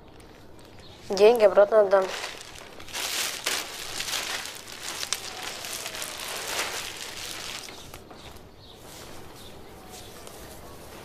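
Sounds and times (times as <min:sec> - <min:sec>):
rustling and crinkling handling: 0:00.0 - 0:11.0
small crackles and ticks: 0:02.0 - 0:08.5.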